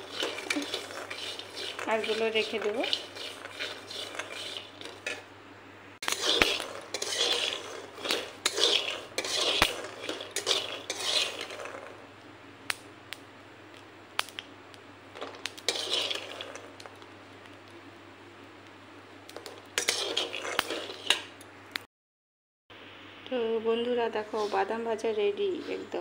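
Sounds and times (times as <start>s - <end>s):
peanuts rattling in pan: 0.0s - 5.2s, 6.0s - 12.0s, 15.6s - 16.8s
metal spatula scraping pan: 0.0s - 5.3s, 6.0s - 12.0s, 15.6s - 16.8s, 19.5s - 21.3s, 24.2s - 24.9s.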